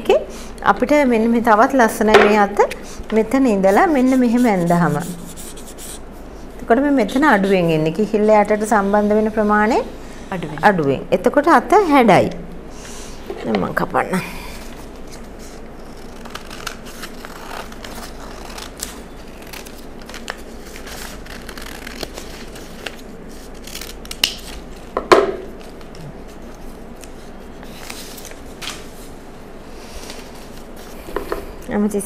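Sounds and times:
paper rustling and crinkling: 14.7 - 29.2, 29.8 - 31.0.

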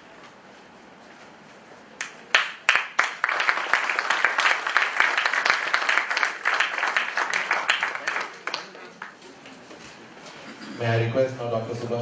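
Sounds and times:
audience applause: 2.3 - 9.2.

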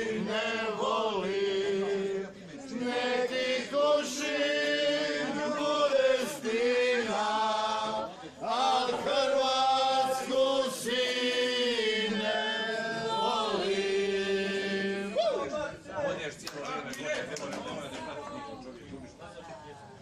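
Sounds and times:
group of people singing: 0.0 - 15.2.

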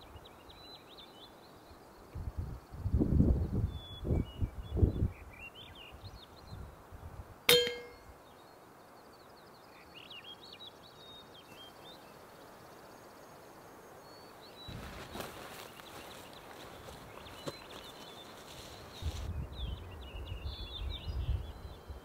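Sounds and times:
small birds chirping: 0.0 - 22.0
footsteps through grass: 14.6 - 19.3.

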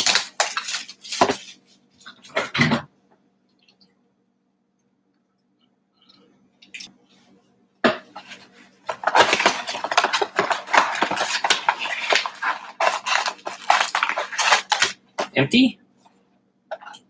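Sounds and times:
packaging crinkling: 0.0 - 2.4, 8.2 - 15.4
cardboard box tearing: 8.9 - 15.0.

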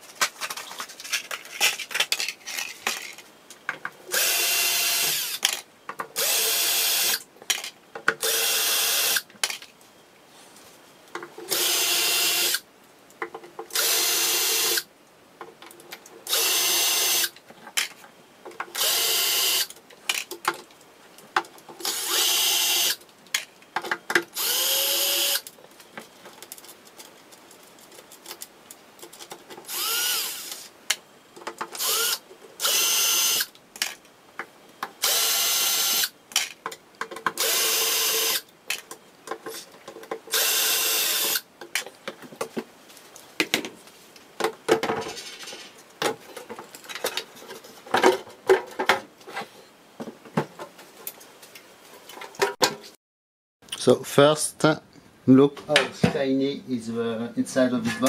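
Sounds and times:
clicks and handling noise: 0.0 - 4.0, 9.3 - 11.5, 19.7 - 22.0, 25.4 - 29.8, 30.5 - 32.5, 36.3 - 37.4, 38.4 - 40.4, 41.6 - 53.0
cordless drill whining: 4.1 - 5.4, 6.2 - 7.2, 8.2 - 9.2, 11.5 - 12.6, 13.7 - 14.8, 16.3 - 17.3, 18.8 - 19.7, 21.8 - 23.0, 24.4 - 25.4, 29.7 - 30.6, 31.8 - 33.5, 35.0 - 36.1, 37.4 - 38.4, 40.3 - 41.4.

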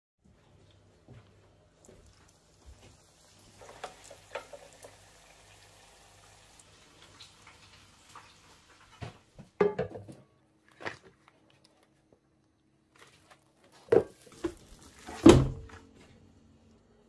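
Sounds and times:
food frying in hot oil: 1.8 - 9.2.

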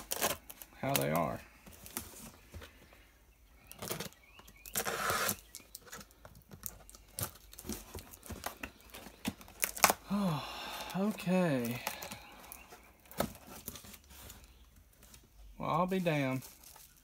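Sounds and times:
knife cutting tape and cardboard: 4.7 - 6.0.

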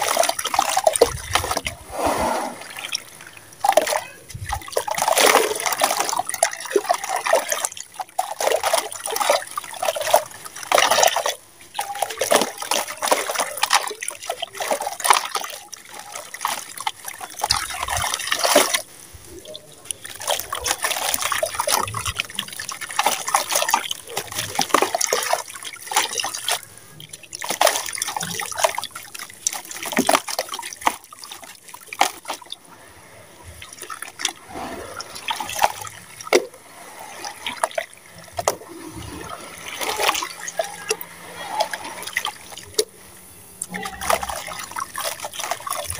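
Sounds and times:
hands sloshing wet slurry: 0.0 - 43.0, 43.6 - 45.9
grains splashing into water: 43.6 - 45.9.

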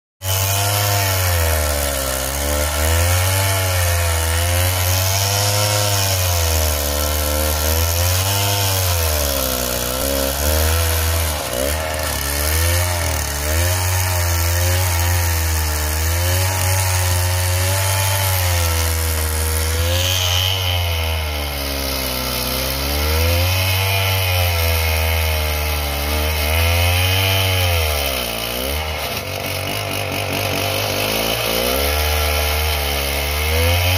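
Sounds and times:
chainsaw cutting log: 0.2 - 33.9.

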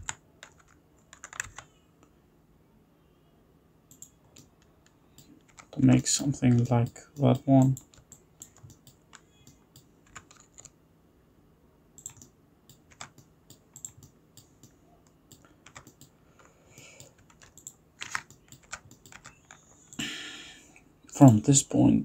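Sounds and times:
keyboard keystrokes: 0.0 - 1.7, 6.5 - 10.7, 12.0 - 14.7, 15.3 - 16.1, 16.8 - 20.0
low steady hum: 0.0 - 22.0.

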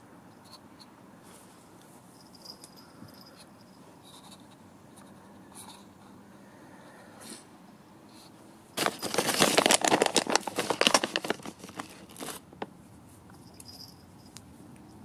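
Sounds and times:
plastic packet crinkling: 8.8 - 12.7.

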